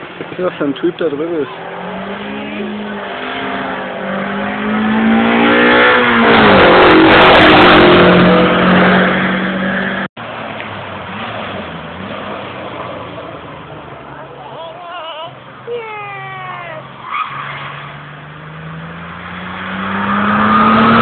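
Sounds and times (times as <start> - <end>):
race car accelerating past: 1.5 - 10.1, 17.2 - 21.0.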